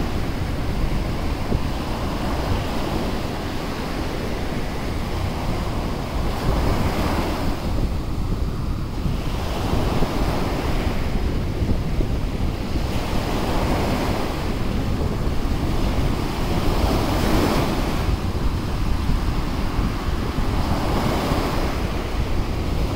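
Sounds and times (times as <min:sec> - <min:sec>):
wind rumble on microphone: 0:00.0 - 0:22.9.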